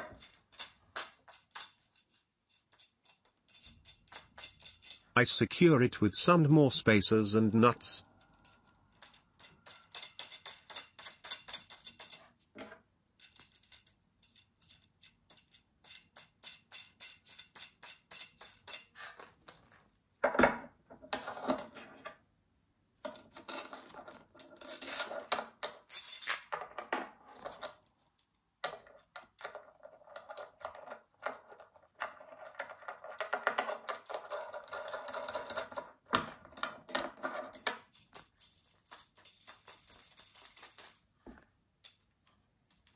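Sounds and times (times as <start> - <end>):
metal clicking and rattling: 0.0 - 5.2, 8.1 - 12.3, 13.2 - 19.7, 27.4 - 41.1.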